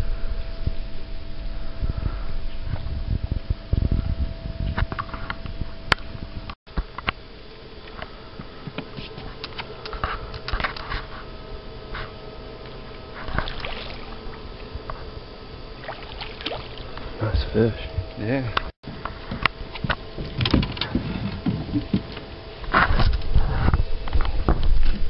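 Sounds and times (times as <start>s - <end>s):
faint steady hum: 0.0s - 25.0s
water splashing and sloshing: 12.8s - 17.2s.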